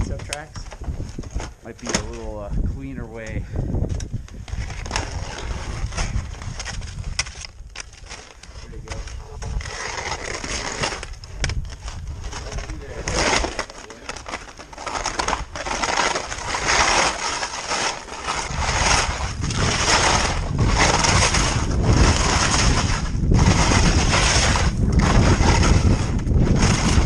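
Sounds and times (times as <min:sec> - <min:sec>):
wind rumbling on microphone: 0:00.0 - 0:27.0
skis scraping icy snow: 0:04.7 - 0:07.0, 0:07.9 - 0:11.2, 0:11.8 - 0:27.0.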